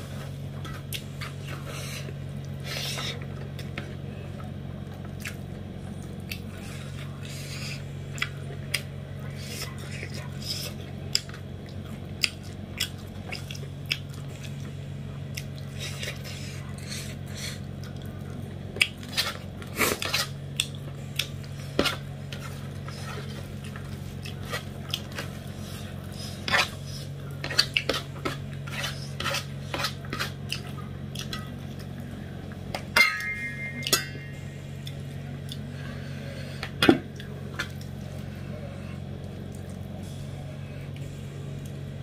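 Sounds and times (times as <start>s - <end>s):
fingers scraping rice on metal plate: 26.3s - 30.4s
low hum: 30.6s - 42.0s
metal plate ringing: 33.0s - 34.5s.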